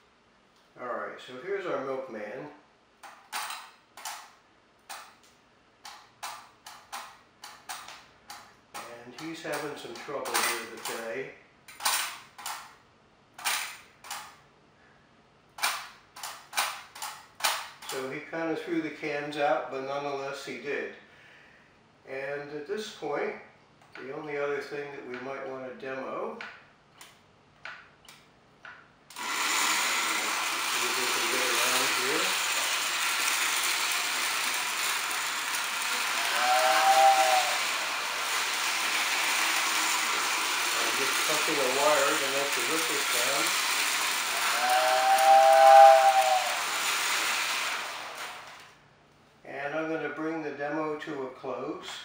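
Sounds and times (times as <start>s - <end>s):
toy train mechanism clacking: 29.1s - 48.8s
two-note train whistle: 44.5s - 46.6s.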